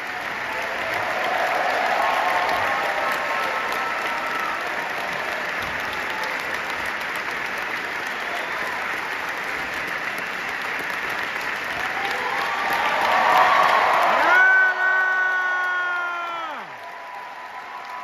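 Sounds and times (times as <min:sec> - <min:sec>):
whoops and cheers: 0:00.0 - 0:06.6, 0:11.6 - 0:18.0
audience applauding: 0:00.0 - 0:18.0.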